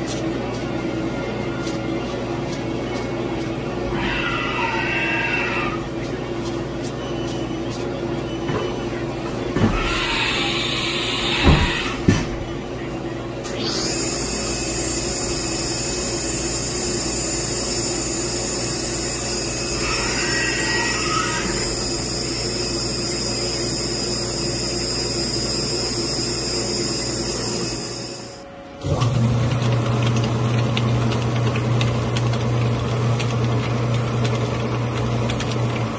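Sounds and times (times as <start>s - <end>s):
workshop machine humming: 0.0s - 35.9s
high-pitched whine: 13.4s - 28.5s.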